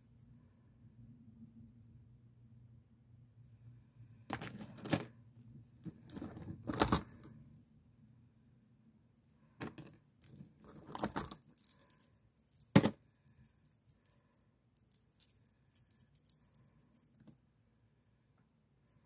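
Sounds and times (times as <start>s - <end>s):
beads rustling and clicking: 9.6s - 17.4s.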